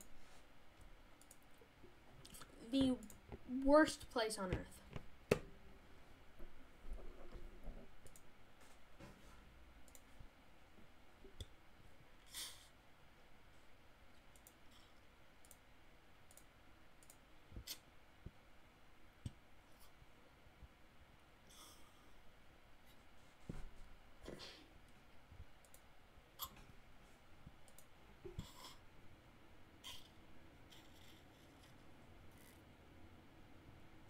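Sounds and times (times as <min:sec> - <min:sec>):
computer mouse clicks: 0:01.2 - 0:01.6, 0:08.0 - 0:08.3, 0:09.8 - 0:10.1, 0:14.3 - 0:15.6, 0:16.2 - 0:17.8, 0:25.6 - 0:26.5, 0:27.6 - 0:27.9.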